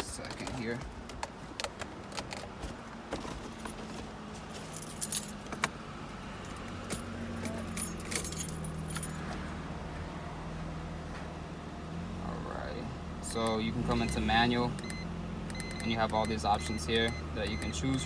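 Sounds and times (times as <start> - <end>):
car low hum: 0.0 - 18.0
car keys jangling: 0.2 - 2.5, 4.5 - 5.7, 6.4 - 9.2.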